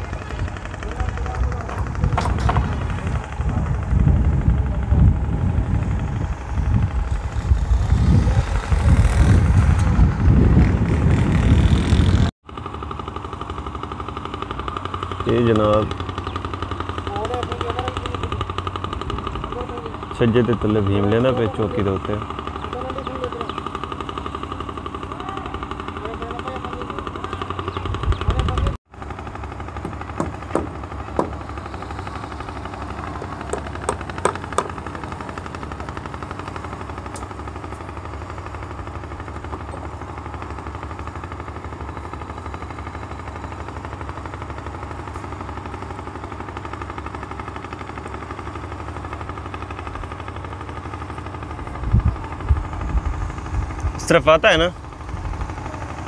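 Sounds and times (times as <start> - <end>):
engine running with fast pulse: 0.0 - 56.0
sharp knocks: 1.6 - 2.9, 29.8 - 31.5, 33.2 - 34.8.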